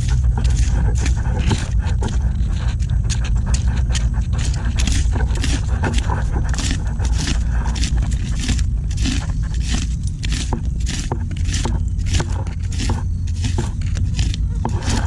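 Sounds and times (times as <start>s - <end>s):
constant low rumble: 0.0s - 15.0s.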